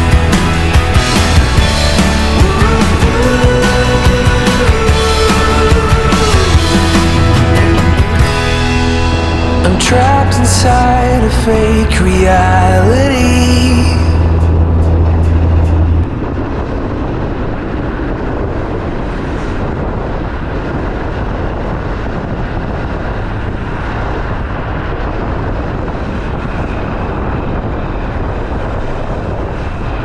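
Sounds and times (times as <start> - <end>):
background music: 0.0 - 16.0
tram rolling past: 0.0 - 30.0.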